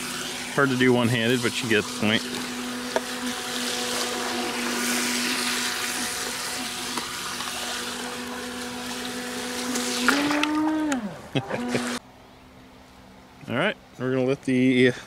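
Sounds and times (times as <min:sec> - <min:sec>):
water jet hiss and spray: 0:00.0 - 0:10.5
electric motor whining: 0:00.0 - 0:12.0.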